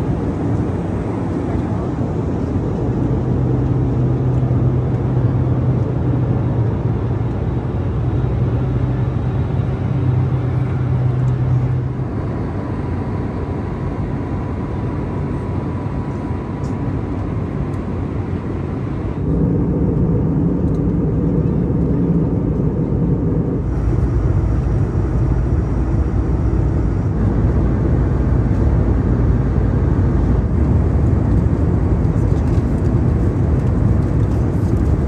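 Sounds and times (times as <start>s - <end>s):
low hum: 0.0s - 35.0s
aircraft cabin rushing noise: 18.9s - 35.0s.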